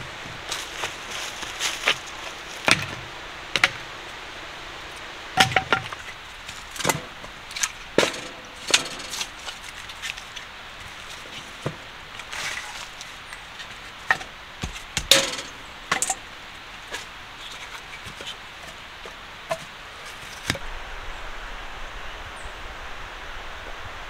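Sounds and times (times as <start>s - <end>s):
firewood knocking and clunking: 0.0s - 3.9s, 5.4s - 17.1s.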